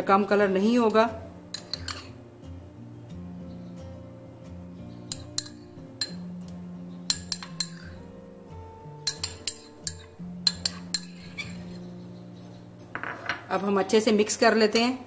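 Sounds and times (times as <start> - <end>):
soft background music: 0.0 - 15.0
spoon clinking on ceramic bowls: 0.9 - 2.2, 5.1 - 6.3, 7.1 - 8.0, 9.0 - 13.8.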